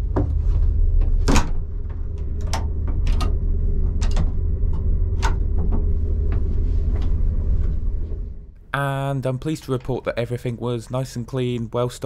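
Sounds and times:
train rumble and hum: 0.0 - 8.6.

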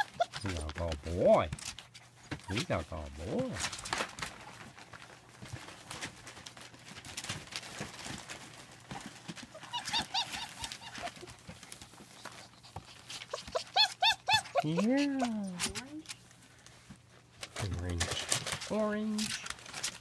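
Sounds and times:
puppy whining squeaks: 0.0 - 0.6, 2.4 - 2.7, 9.5 - 11.4, 12.2 - 15.9
light scratching and tapping: 0.1 - 20.0.

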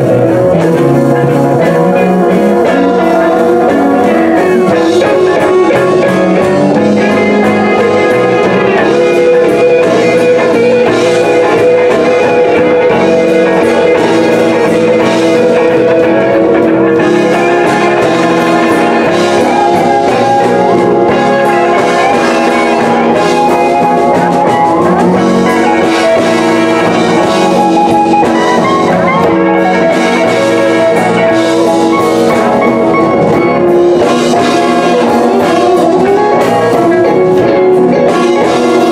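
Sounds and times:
bent electric guitar notes: 0.0 - 38.9
blues band playing: 0.0 - 38.9.

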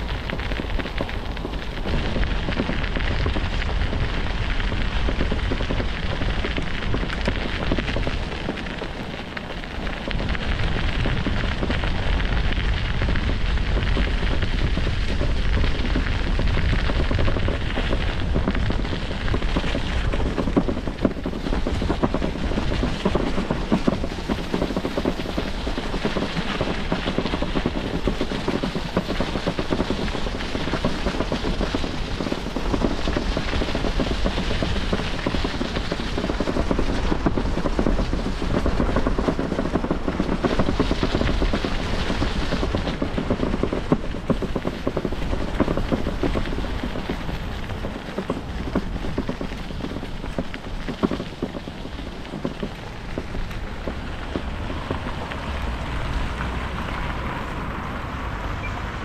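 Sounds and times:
wind buffeting microphone: 0.0 - 59.0
road noise: 42.7 - 59.0.

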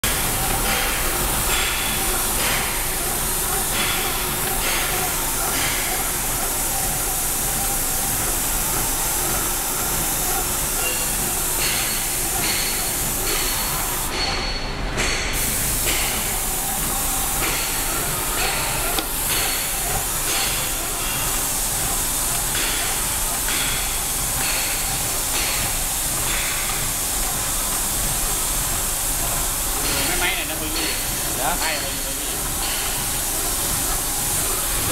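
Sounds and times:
paint sprayer hissing: 0.0 - 14.3, 15.4 - 34.9.

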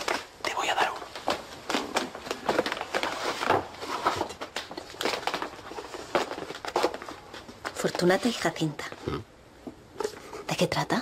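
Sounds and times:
clothing rustle: 0.0 - 9.0
footsteps: 0.0 - 9.0
book handling knocks and rustling: 1.2 - 7.8.

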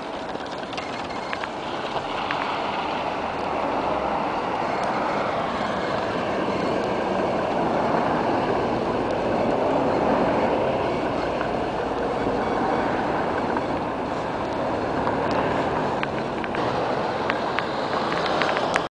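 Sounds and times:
sharp clicks: 0.0 - 3.6, 13.3 - 16.6, 17.2 - 18.9
passing traffic: 0.0 - 18.9.

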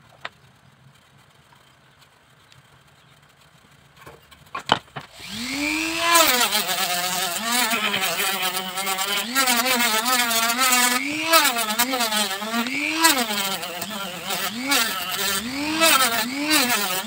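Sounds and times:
drill motor winding up: 5.1 - 17.0
sanding drum rasping on bamboo: 5.2 - 17.0.

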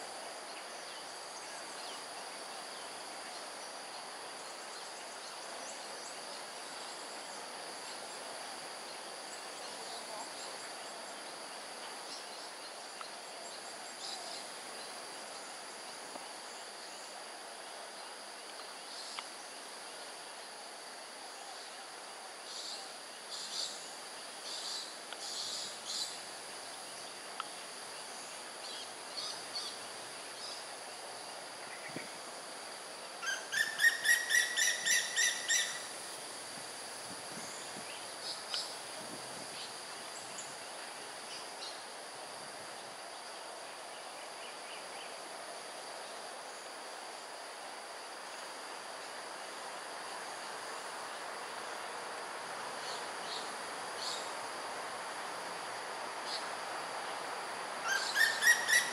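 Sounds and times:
insects droning: 0.0 - 58.9.

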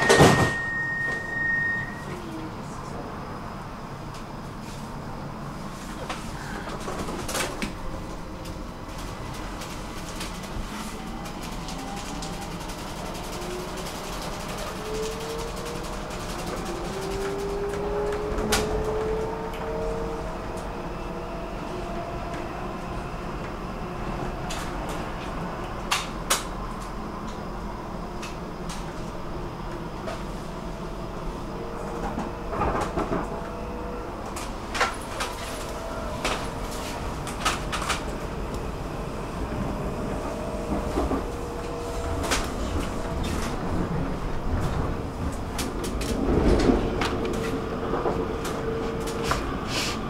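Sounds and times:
faint held tone: 0.0 - 2.2
metro train rumble: 0.0 - 50.0.

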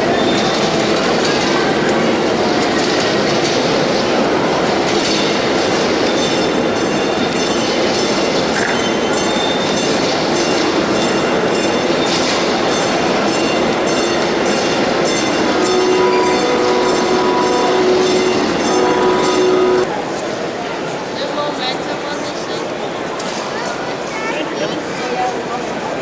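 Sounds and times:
train wheels clicking on rails: 0.0 - 21.0
steady held tone: 13.6 - 19.9.

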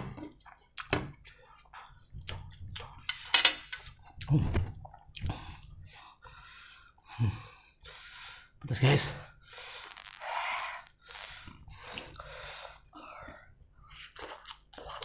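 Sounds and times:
person chewing noodles: 0.4 - 5.6.

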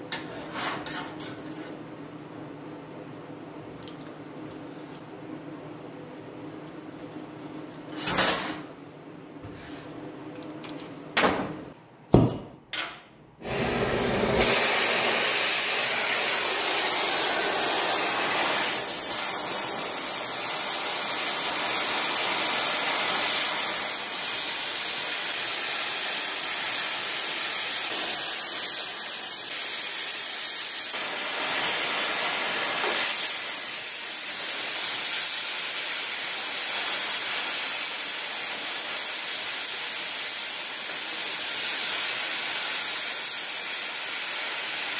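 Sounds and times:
cutting torch hissing: 13.4 - 44.9.

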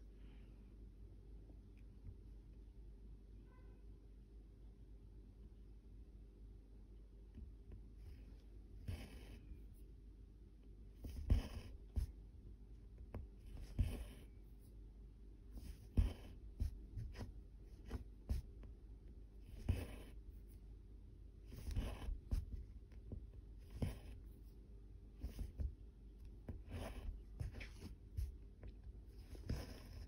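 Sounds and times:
thread rasping through fabric: 13.0 - 14.4, 21.5 - 24.3.

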